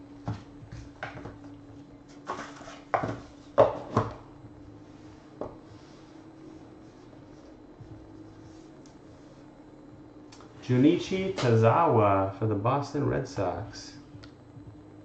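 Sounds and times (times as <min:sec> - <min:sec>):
faint steady hum: 0:00.0 - 0:15.0
cardboard rustling scrape: 0:02.1 - 0:03.4.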